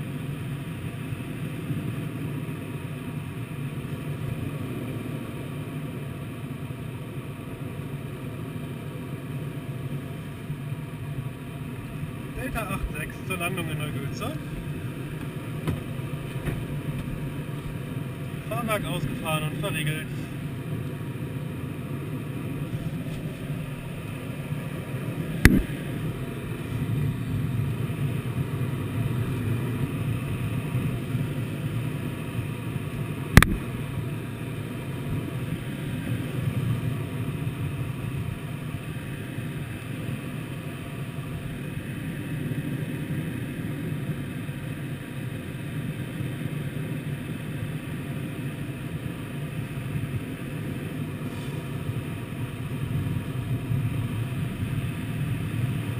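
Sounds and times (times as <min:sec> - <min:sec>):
airflow rushing around glider: 0:00.0 - 0:55.9
sharp clicks: 0:33.4 - 0:33.6.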